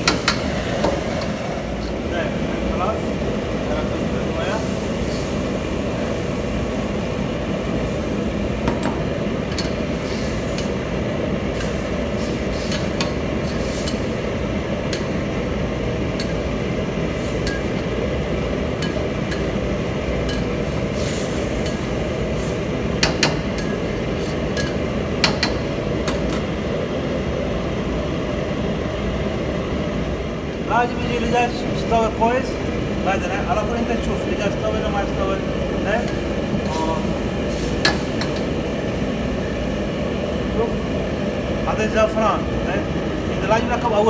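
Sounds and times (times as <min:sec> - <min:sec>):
gas range rushing noise: 0:00.0 - 0:26.8.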